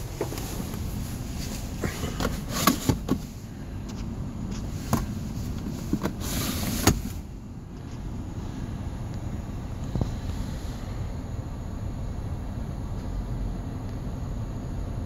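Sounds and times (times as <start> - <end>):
car console clicks and knocks: 0.0 - 0.9, 1.8 - 7.2
steady low rumble: 0.0 - 15.0.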